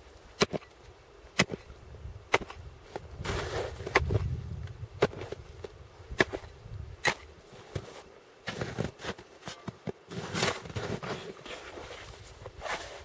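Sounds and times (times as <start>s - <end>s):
axe chopping ice: 0.4s - 0.7s, 1.4s - 1.7s, 6.2s - 7.9s
ice chips being shovelled: 7.7s - 13.0s.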